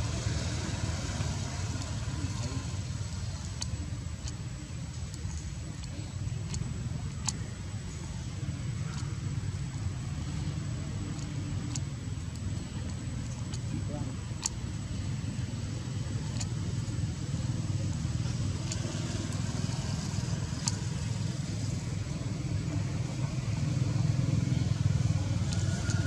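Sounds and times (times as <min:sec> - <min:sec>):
steady low rumble: 0:00.0 - 0:26.0
faint clicks: 0:00.6 - 0:26.0.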